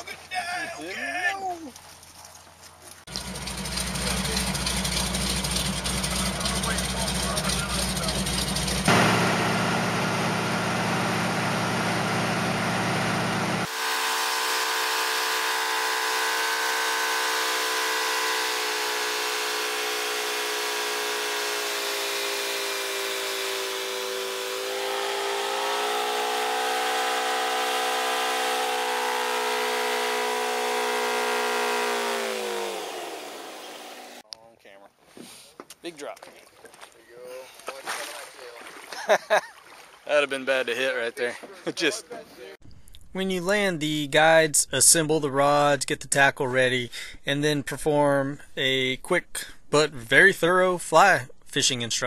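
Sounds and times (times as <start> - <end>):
plane engine and propeller drone: 3.1 - 34.2.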